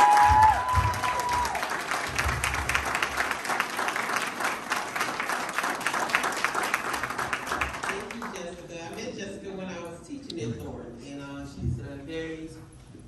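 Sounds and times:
audience clapping: 0.0 - 8.9.

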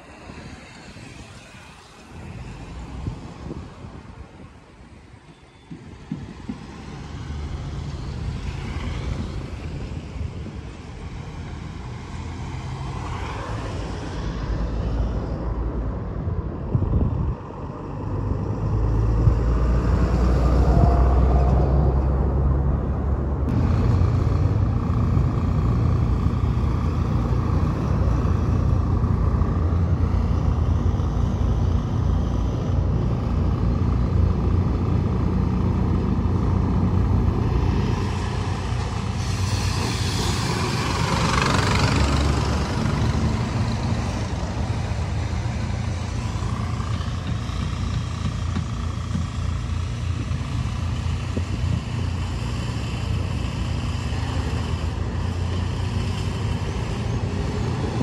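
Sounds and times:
bus engines droning: 0.0 - 58.0.

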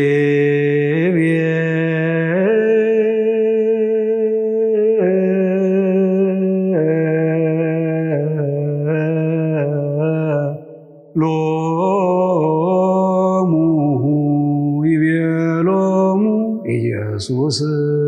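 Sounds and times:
man chanting liturgical chant: 0.0 - 10.6, 11.2 - 18.0.

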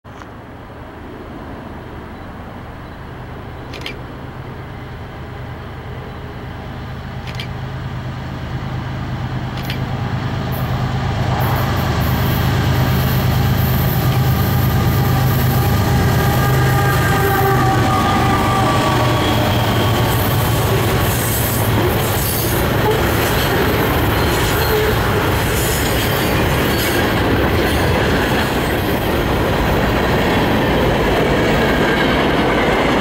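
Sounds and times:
diesel locomotive engine drone: 0.1 - 33.0
train wheels hissing on rails: 8.3 - 33.0.

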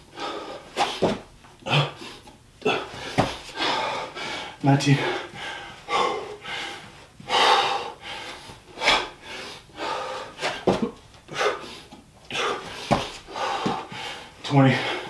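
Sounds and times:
man breathing hard: 0.0 - 15.0
dull thump on floor: 0.9 - 1.2, 3.2 - 3.4.

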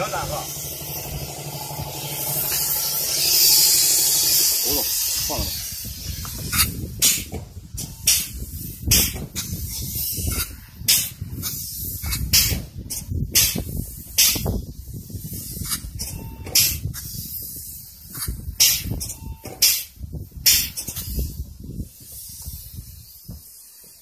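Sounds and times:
spray foam gun hissing: 0.0 - 12.6, 20.5 - 24.0
steady low rumble: 0.0 - 19.2.

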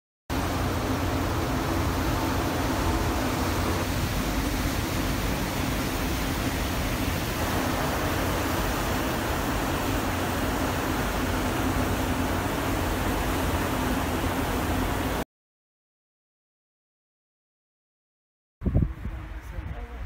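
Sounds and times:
churning ship wake: 0.3 - 15.2
low ship hum: 0.3 - 15.2.

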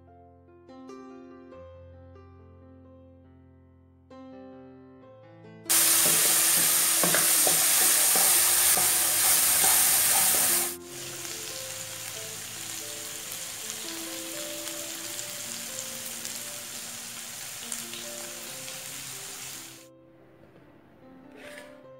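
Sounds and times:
wooden spatula scraping a pan: 5.7 - 10.8, 21.3 - 21.8
paste sizzling in hot oil: 5.7 - 19.8.

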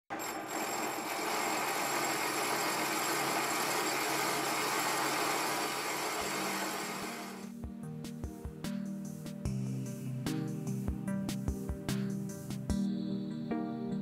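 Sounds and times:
metal lathe cutting hiss: 0.1 - 7.5.

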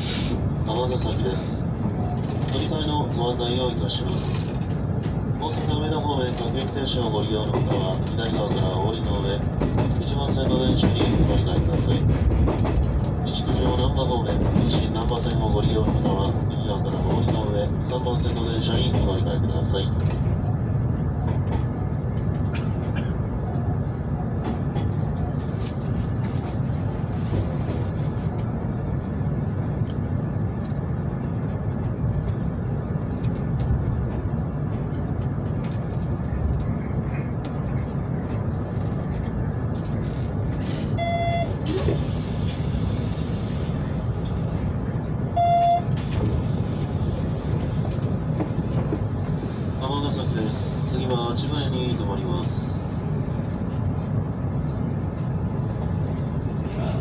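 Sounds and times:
train wheels rumbling on rails: 0.0 - 57.0
short beeps: 41.0 - 41.6, 45.4 - 46.0.

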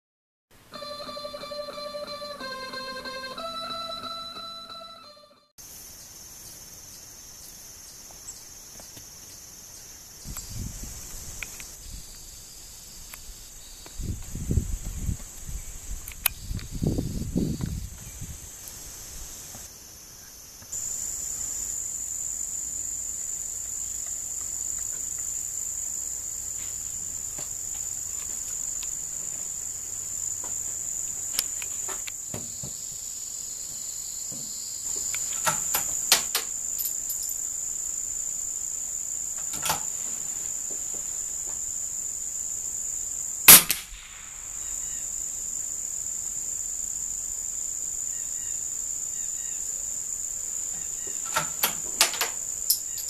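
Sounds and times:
insects chirring: 5.6 - 53.0
rifle shot: 43.5 - 44.9.

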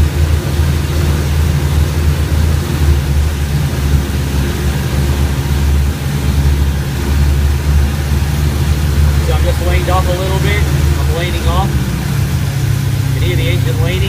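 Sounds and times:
radial aircraft engine droning: 0.0 - 14.0.

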